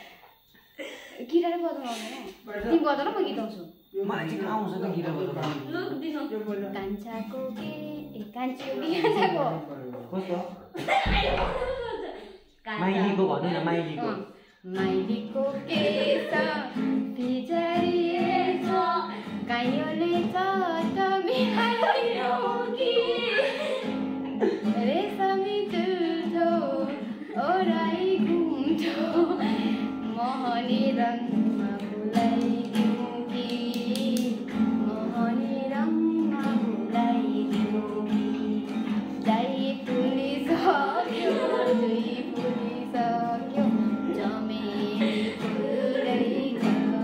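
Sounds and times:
woman singing: 6.8s - 9.2s, 14.7s - 47.0s
strummed acoustic guitar: 14.7s - 47.0s.

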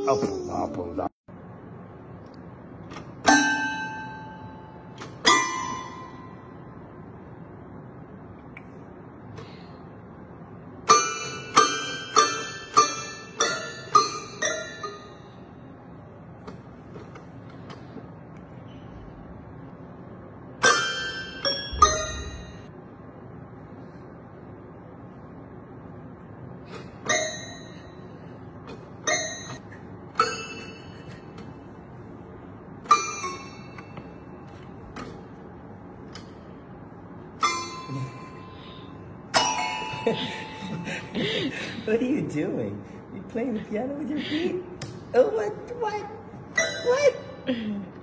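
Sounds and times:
toy piano note clusters: 3.2s - 6.4s, 10.9s - 15.2s, 27.0s - 28.2s, 29.0s - 31.2s, 32.8s - 34.6s, 46.5s - 47.2s.

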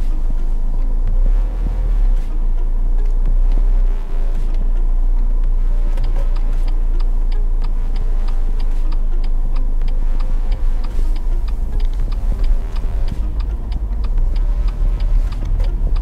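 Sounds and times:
car engine and tyres rumbling: 0.0s - 16.0s
turn signal ticking: 0.0s - 16.0s.

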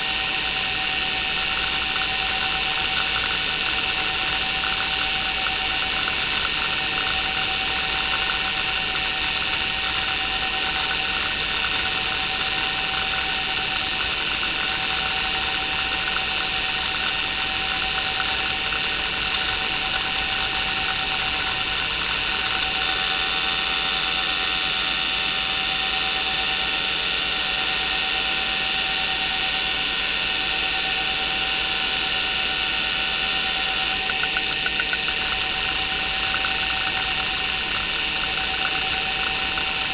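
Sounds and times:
hard drive spinning whine: 0.0s - 39.9s
hard drive head chattering: 1.6s - 22.9s, 33.9s - 39.9s.

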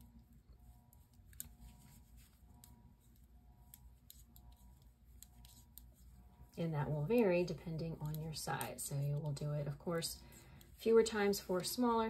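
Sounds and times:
knitting needles clicking: 0.8s - 10.9s.

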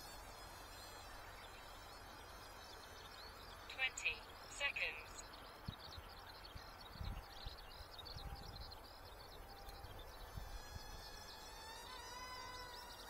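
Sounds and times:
wind buffeting microphone: 5.2s - 11.3s.

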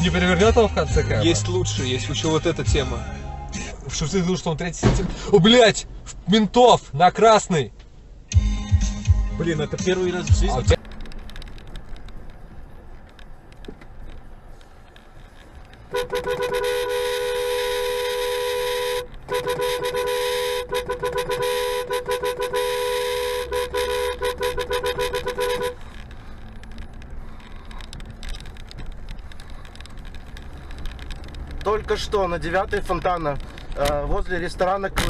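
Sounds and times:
engine and tyre noise on snow: 9.6s - 35.0s
car horn honking: 15.9s - 25.9s.

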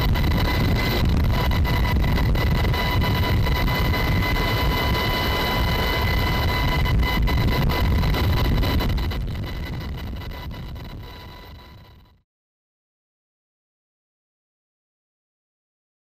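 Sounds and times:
wind noise: 0.0s - 12.1s
helicopter rotor and engine rumble: 0.0s - 12.2s
high whine: 0.0s - 12.2s.

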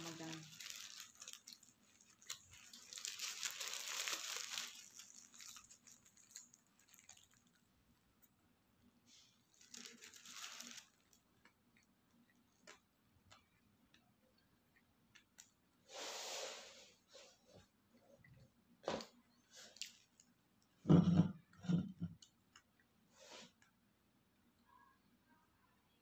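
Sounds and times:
paper wrapper crinkling: 0.0s - 7.7s, 9.1s - 11.6s, 19.6s - 20.3s.

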